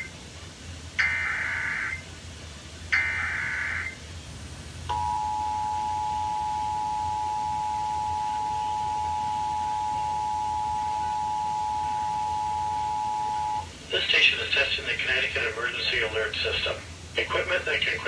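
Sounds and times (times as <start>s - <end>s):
digital data burst: 1.0s - 2.0s, 3.0s - 4.0s.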